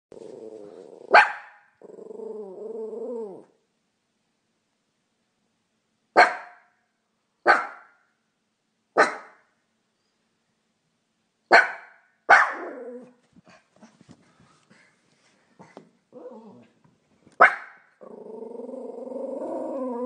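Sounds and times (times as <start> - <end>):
dog barking: 1.1 - 1.7, 6.2 - 6.7, 7.4 - 8.0, 9.0 - 9.4, 11.5 - 12.8, 17.4 - 17.8.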